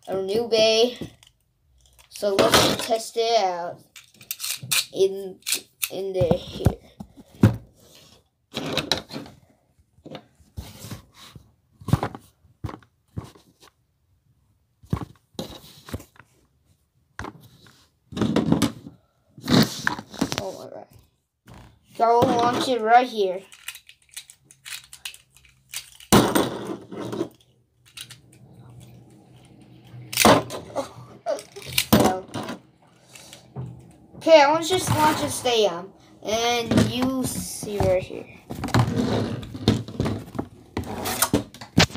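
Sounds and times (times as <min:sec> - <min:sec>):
plastic wrapper crinkling: 0:23.4 - 0:26.2.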